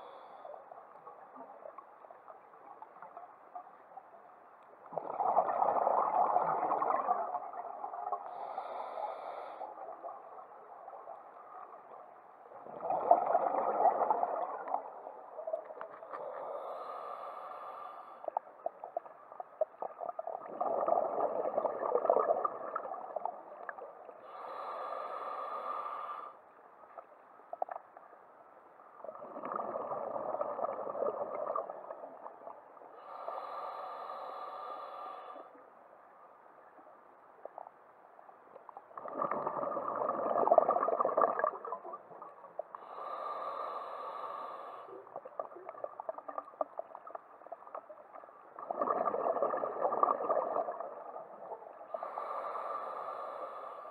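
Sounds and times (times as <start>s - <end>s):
exhaled bubbles bursting: 4.9s - 8.1s, 12.6s - 15.0s, 20.3s - 23.4s, 29.1s - 32.2s, 39.0s - 42.2s, 48.6s - 51.6s.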